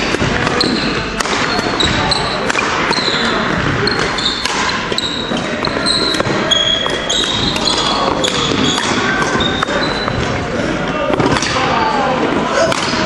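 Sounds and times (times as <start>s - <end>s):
racket hitting shuttlecock: 0.0s - 10.4s, 12.7s - 13.0s
shoes squeaking on wooden floor: 0.4s - 10.4s.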